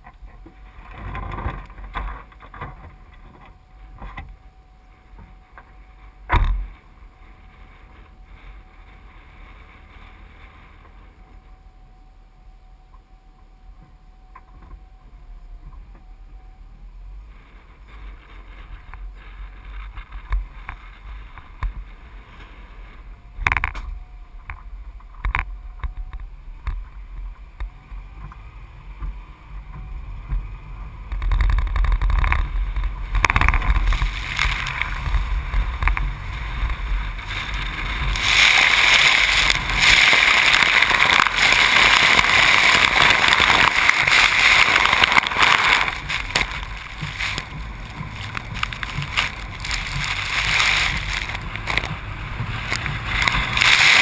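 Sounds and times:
low rumble: 0:00.0 - 0:54.0
road and wind noise: 0:00.0 - 0:54.0
truck ploughing through water: 0:27.9 - 0:54.0.

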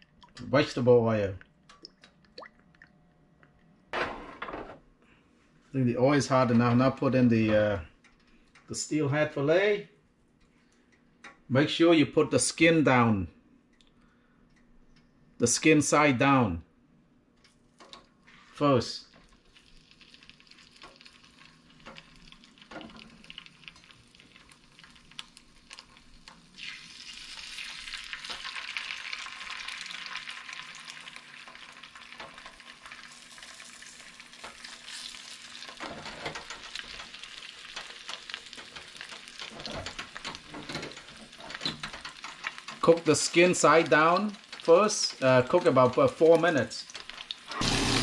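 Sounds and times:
fish fillets sizzling in oil: 0:19.4 - 0:35.9, 0:47.0 - 0:48.0.

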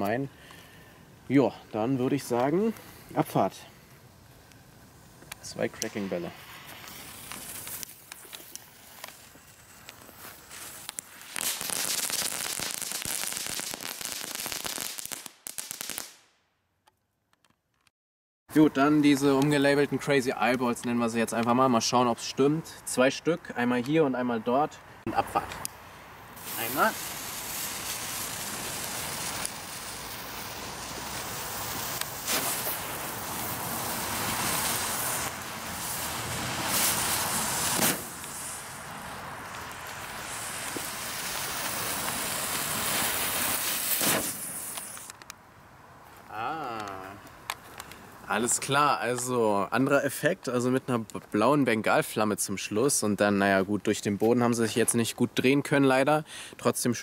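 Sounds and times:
fireworks crackling: 0:01.2 - 0:16.4, 0:25.1 - 0:45.4, 0:46.1 - 0:50.0
firework fizz and pops: 0:04.4 - 0:16.4, 0:26.4 - 0:45.4.

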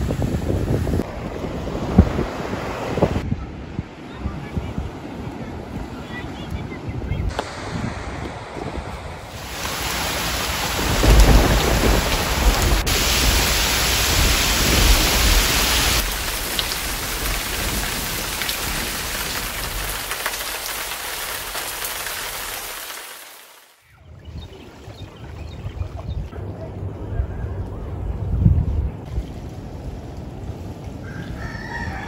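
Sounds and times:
deep low rumble: 0:07.3 - 0:09.8
heavy rain pouring: 0:07.3 - 0:23.7.

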